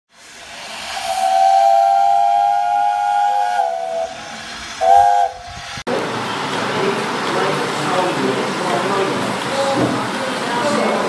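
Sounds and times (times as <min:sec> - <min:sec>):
steam hissing: 0:00.1 - 0:11.0
steam whistle blowing: 0:00.6 - 0:05.7.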